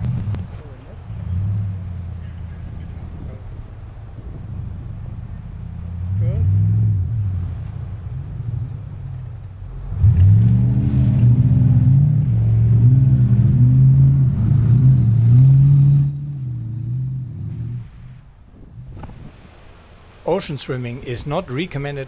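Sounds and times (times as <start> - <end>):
truck engine revving hard: 0.0 - 3.6, 4.2 - 17.9.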